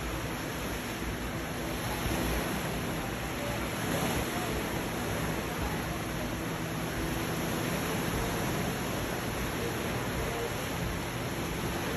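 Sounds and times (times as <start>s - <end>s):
sea waves breaking on rocks: 0.0s - 11.9s.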